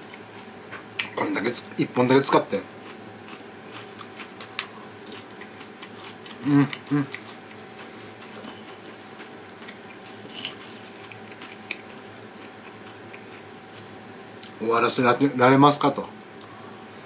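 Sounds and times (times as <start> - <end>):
chewing clicks: 2.8 - 14.6
closed-mouth hums: 4.4 - 10.0.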